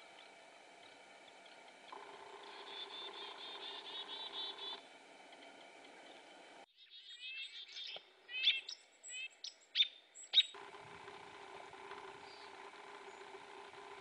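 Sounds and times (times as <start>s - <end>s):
steady low hum: 0.0s - 6.7s, 10.5s - 14.0s
bird high thin call notes: 2.4s - 4.8s.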